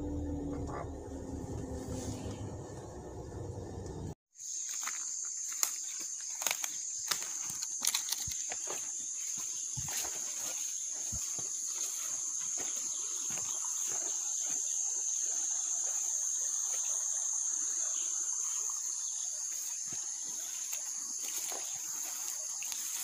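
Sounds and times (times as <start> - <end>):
rustling through tall grass: 4.4 - 14.6, 19.5 - 23.0
high-pitched insect drone: 4.4 - 23.0.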